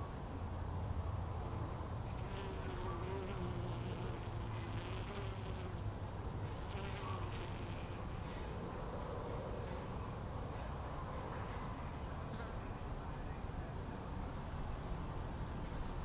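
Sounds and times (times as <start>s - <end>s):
bee buzzing in flight: 2.1s - 5.8s, 6.5s - 8.2s.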